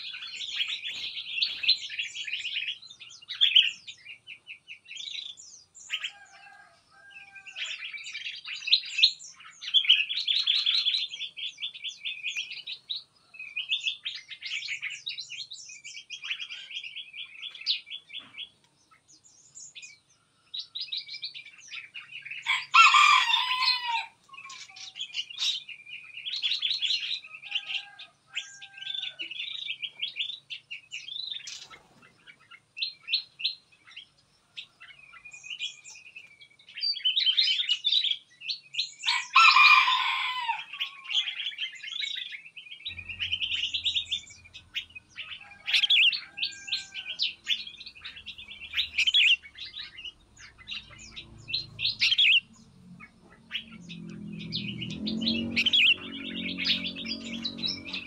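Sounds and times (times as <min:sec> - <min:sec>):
songbirds chirping and trilling: 0:00.0 - 0:58.0
low drone: 0:42.8 - 0:46.4, 0:47.6 - 0:58.0.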